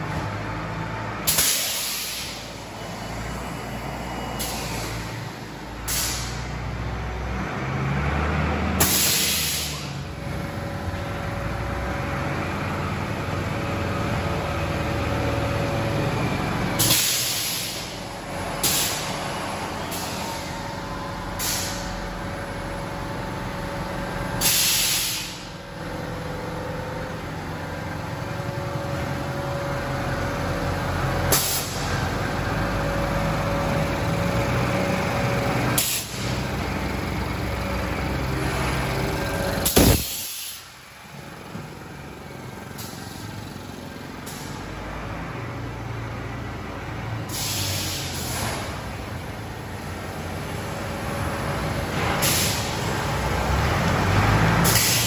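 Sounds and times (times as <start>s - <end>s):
compressed air hisses: 1.3s - 2.5s, 5.9s - 6.4s, 16.8s - 18.0s, 18.6s - 19.1s, 21.4s - 21.9s, 24.4s - 25.5s, 39.6s - 40.7s, 47.3s - 48.4s, 52.2s - 52.8s, 54.6s - 55.0s.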